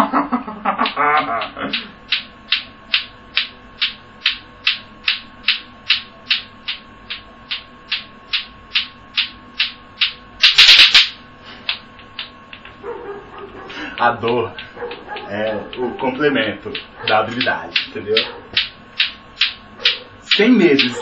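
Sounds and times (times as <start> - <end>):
clacker balls knocking together: 13.9 - 21.0.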